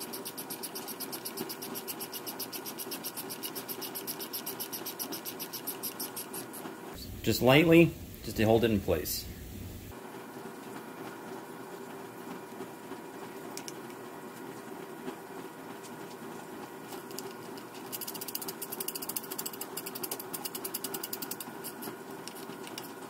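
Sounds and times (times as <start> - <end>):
faint steady hum: 0.0 - 23.0
hand ratchet clicking: 17.9 - 21.8.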